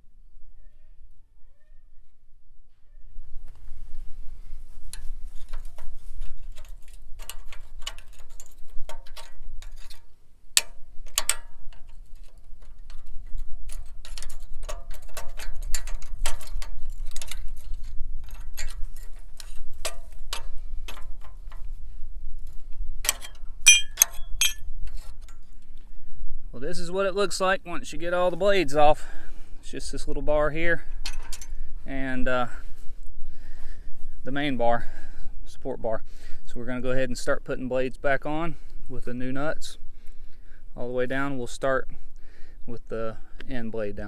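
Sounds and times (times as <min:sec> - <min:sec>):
low steady rumble: 0:16.7 - 0:35.6
screwdriver clinking on steel blades: 0:23.7 - 0:24.6.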